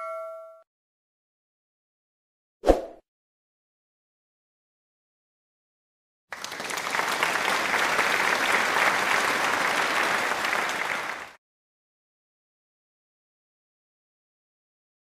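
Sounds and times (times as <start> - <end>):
applause: 6.3 - 11.4.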